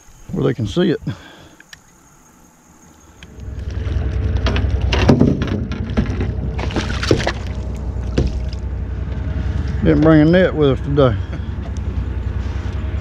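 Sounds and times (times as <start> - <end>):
fish splashing and thrashing: 4.4 - 9.7.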